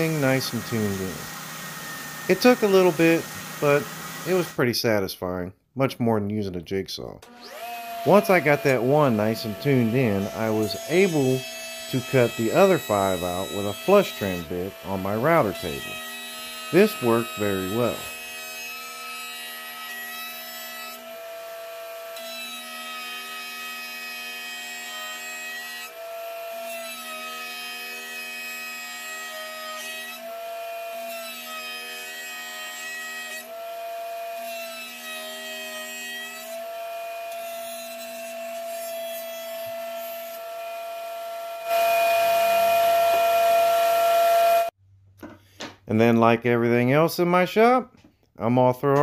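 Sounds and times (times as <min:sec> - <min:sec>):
router motor whining: 0:00.0 - 0:04.6, 0:07.2 - 0:19.8, 0:39.6 - 0:44.7.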